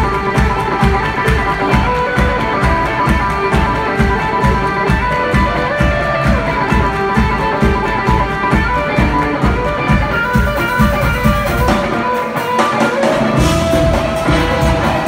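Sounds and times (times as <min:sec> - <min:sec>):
drums: 0:00.0 - 0:15.0
electric guitar: 0:00.0 - 0:15.0
keyboards: 0:00.0 - 0:15.0
bass: 0:13.0 - 0:15.0.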